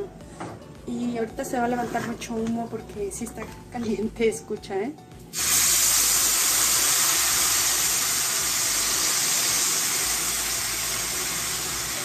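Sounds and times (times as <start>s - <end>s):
salsa sizzling in hot oil: 5.3s - 12.0s.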